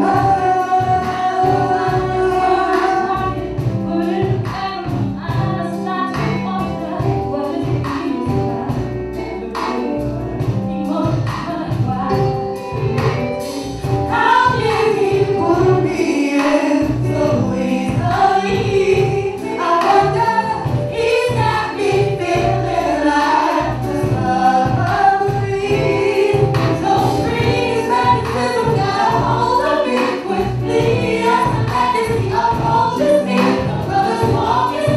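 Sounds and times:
live band playing: 0.0s - 34.9s
woman singing lead: 0.0s - 34.9s
backing singers: 14.1s - 34.9s.

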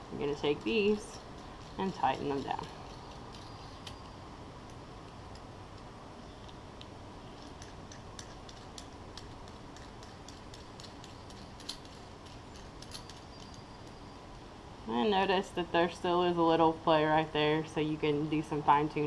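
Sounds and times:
metal clicks of screwing collars: 2.1s - 14.0s.

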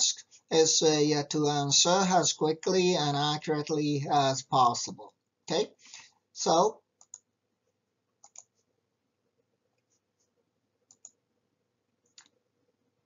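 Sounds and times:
computer mouse clicks: 7.0s - 7.3s, 8.2s - 8.6s, 9.7s - 11.2s, 12.0s - 12.4s.

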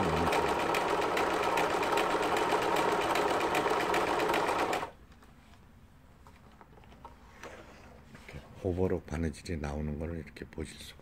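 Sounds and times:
sewing machine running: 0.0s - 4.9s.

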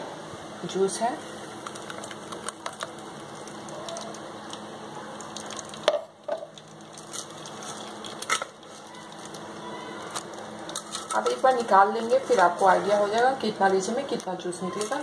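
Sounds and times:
liquid fizzing through a strainer: 1.5s - 9.5s.

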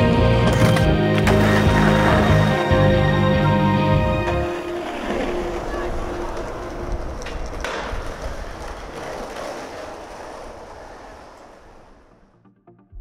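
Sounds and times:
skateboard wheels rolling on asphalt: 0.0s - 12.4s
sharp skateboard clacks: 5.0s - 11.9s.

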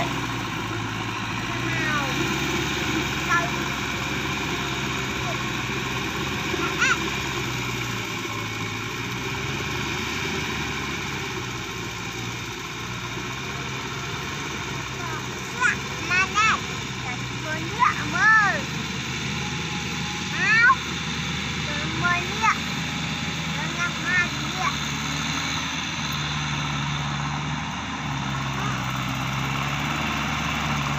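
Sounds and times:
tractor diesel engine running: 0.0s - 30.9s.

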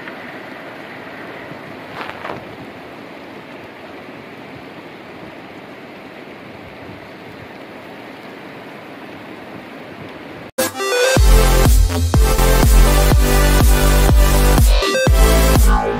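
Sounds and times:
heavy rain splashing: 0.0s - 10.5s.

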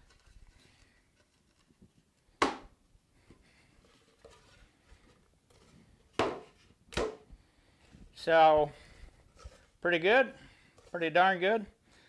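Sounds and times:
sharp wooden knock: 2.4s - 2.7s, 6.2s - 7.2s.

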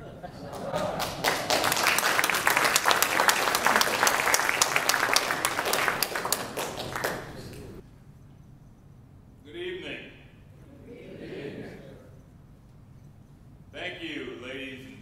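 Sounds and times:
audience applauding: 0.4s - 7.8s.

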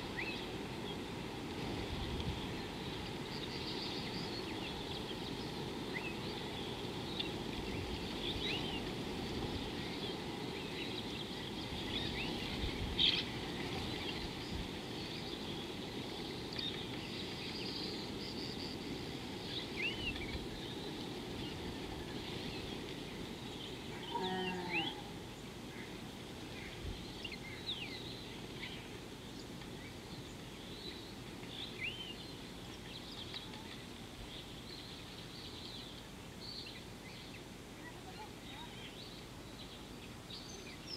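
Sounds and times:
low pitched bird call: 24.0s - 25.1s.

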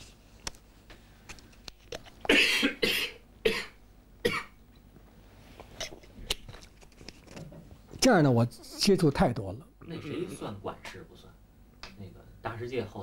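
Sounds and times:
man coughing: 2.3s - 4.6s.

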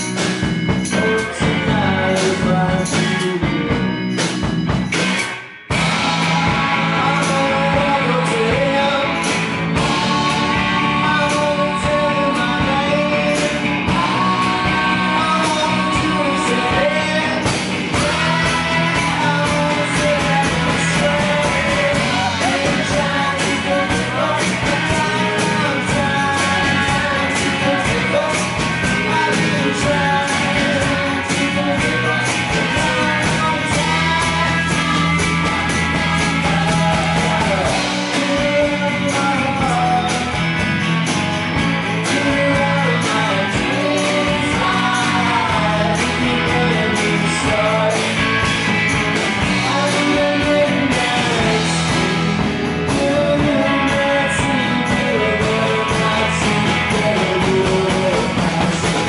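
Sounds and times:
man singing: 0.0s - 4.4s, 5.7s - 59.0s
country rock band playing: 0.0s - 59.0s.

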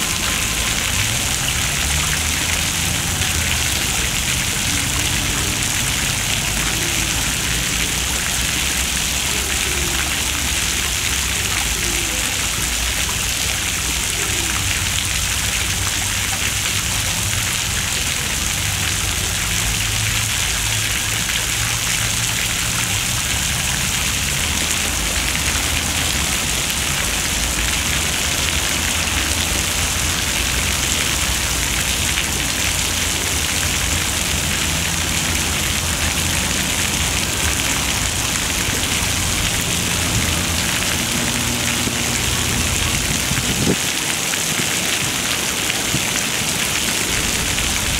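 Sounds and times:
fountain water splashing: 0.0s - 47.9s.

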